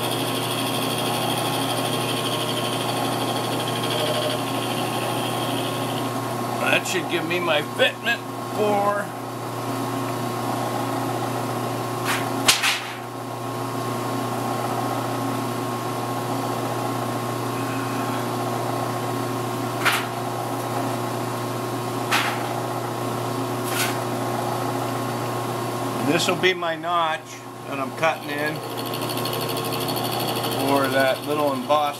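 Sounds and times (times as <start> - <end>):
milling machine humming: 0.0 - 11.9, 13.2 - 31.9.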